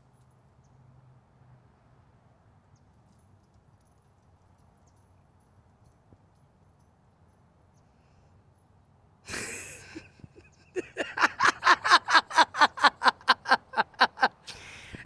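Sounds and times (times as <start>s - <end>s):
woman laughing: 9.3s - 15.0s.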